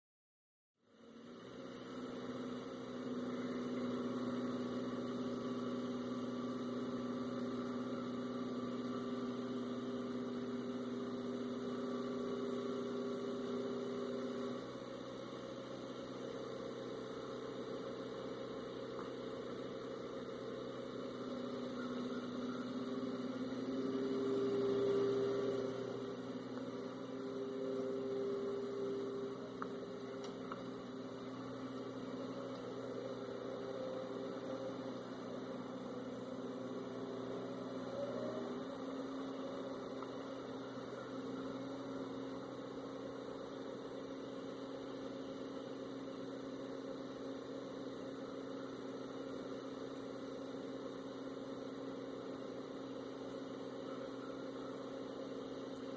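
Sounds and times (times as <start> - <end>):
forklift engine running: 0.8 - 55.9.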